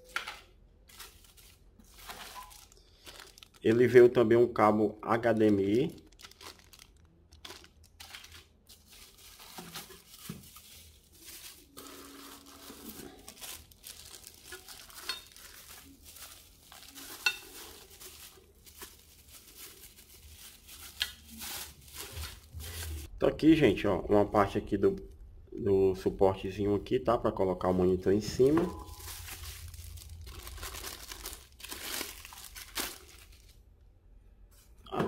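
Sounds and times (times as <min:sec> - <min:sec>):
plastic bags crinkling: 0:00.0 - 0:04.3, 0:05.1 - 0:23.1, 0:28.1 - 0:33.7.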